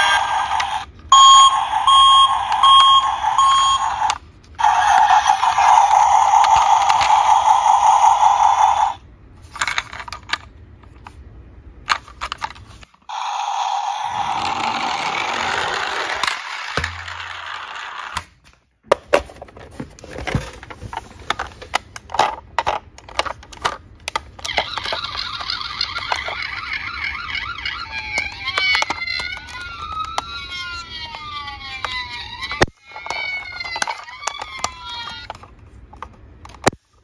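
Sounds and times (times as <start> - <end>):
toy electronic siren wailing: 0.0 - 9.0, 13.1 - 18.1, 24.4 - 35.4
plastic toy clicks and scrapes: 4.0 - 8.9, 14.1 - 18.3, 20.2 - 36.8.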